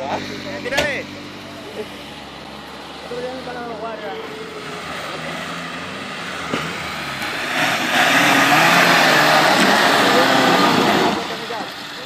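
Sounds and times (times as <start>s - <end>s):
engine revving hard: 0.0s - 12.0s
tyres churning loose dirt: 2.9s - 12.0s.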